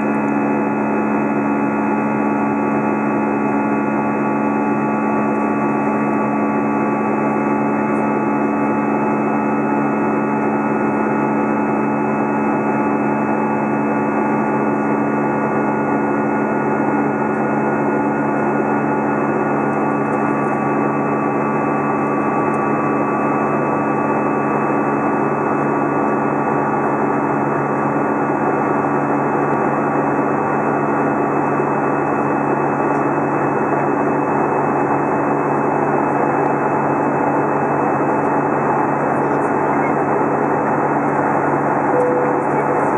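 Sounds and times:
jet engine and airflow drone: 0:00.0 - 0:42.9
steady humming tones: 0:29.6 - 0:42.9.

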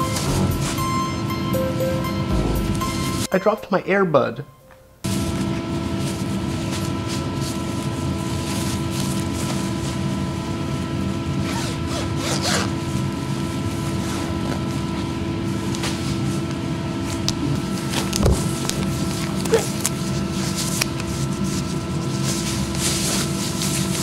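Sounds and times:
air compressor humming: 0:00.0 - 0:03.3, 0:05.0 - 0:23.9
zipper being pulled: 0:11.4 - 0:12.7.

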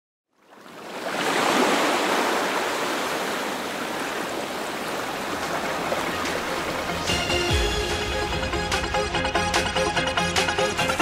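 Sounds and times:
ocean surf breaking on beach: 0:00.5 - 0:07.4.

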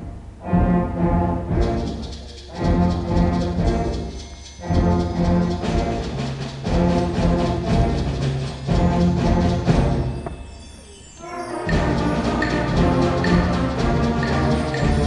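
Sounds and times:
concert band playing: 0:11.3 - 0:15.0.

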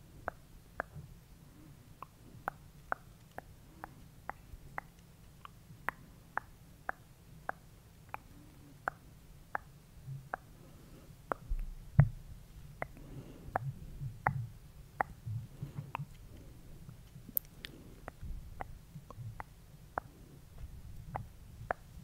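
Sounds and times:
regular sharp clicking: 0:15.8 - 0:20.2.

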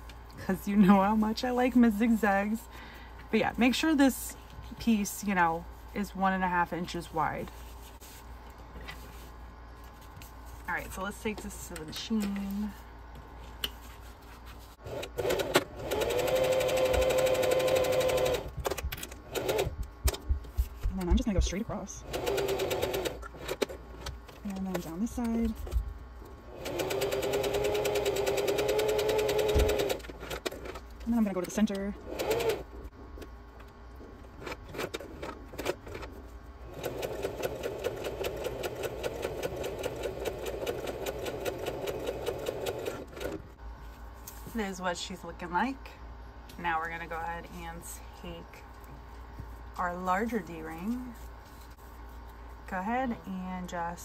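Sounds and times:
sewing machine stitching: 0:14.8 - 0:18.5, 0:22.0 - 0:23.7, 0:26.6 - 0:30.5, 0:32.1 - 0:32.6, 0:36.7 - 0:43.4.

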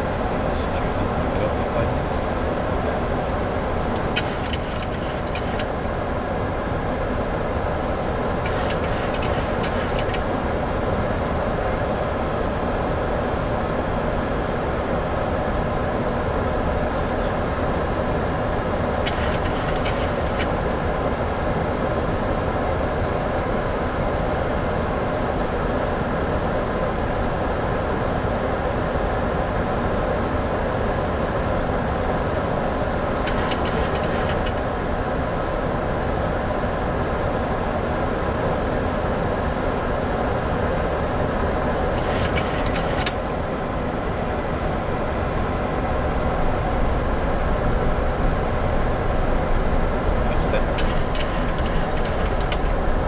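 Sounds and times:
cockpit airflow and engine noise: 0:00.0 - 0:53.0
short high hissing bursts: 0:08.5 - 0:10.0.

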